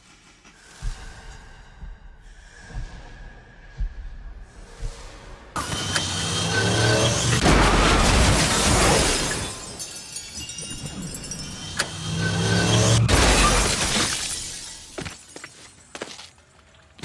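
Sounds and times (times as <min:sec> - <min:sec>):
car crash: 0:07.0 - 0:10.4, 0:11.5 - 0:15.0
glass shattering: 0:07.4 - 0:15.3.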